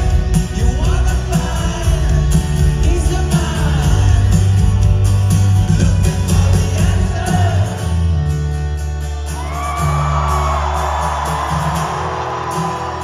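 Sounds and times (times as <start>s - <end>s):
man singing: 0.0s - 8.1s
bass: 0.0s - 13.0s
rock band playing: 0.0s - 13.0s
strummed acoustic guitar: 0.0s - 13.0s.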